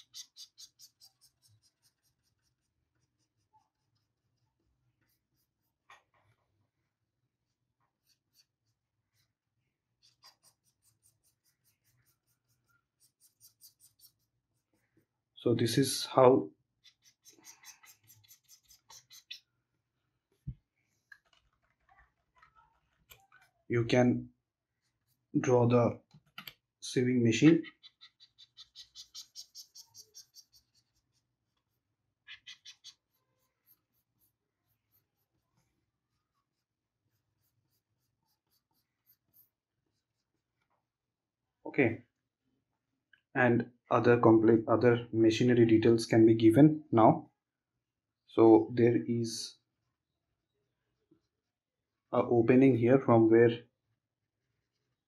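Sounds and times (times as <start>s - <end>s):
stylus scratching drawing tablet: 0.0s - 6.4s, 7.3s - 15.4s, 16.6s - 19.5s, 24.7s - 25.7s, 27.4s - 40.6s.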